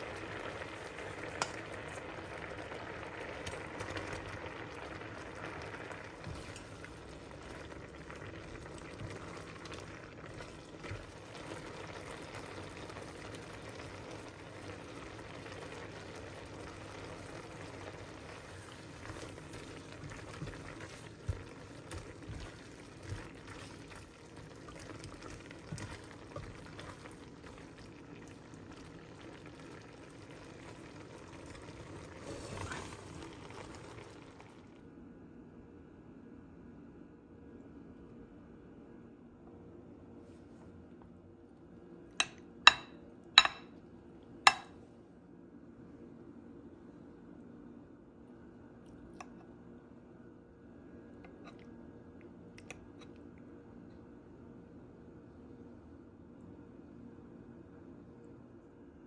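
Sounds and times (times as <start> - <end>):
sauce bubbling in a skillet: 0.0 - 35.0, 44.5 - 44.8.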